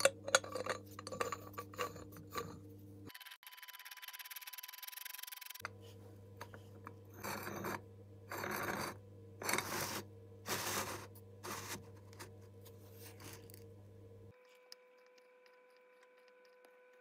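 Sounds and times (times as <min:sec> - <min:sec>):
steady low hum: 0:05.6 - 0:17.0.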